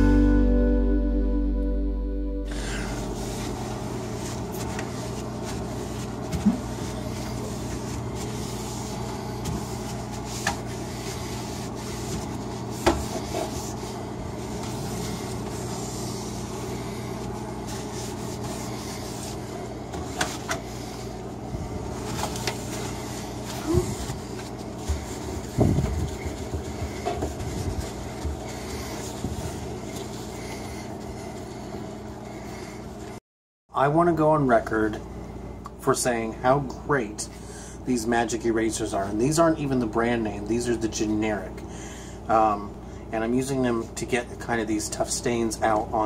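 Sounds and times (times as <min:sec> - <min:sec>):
steady low hum: 0:00.0 - 0:33.2
sponge scrubbing shelf: 0:02.6 - 0:33.2.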